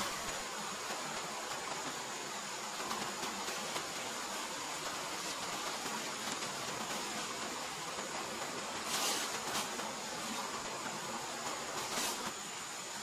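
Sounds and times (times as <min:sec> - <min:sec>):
insects droning: 0:00.0 - 0:13.0
stream running over rocks: 0:00.0 - 0:13.0
tarp rustling: 0:02.7 - 0:12.5.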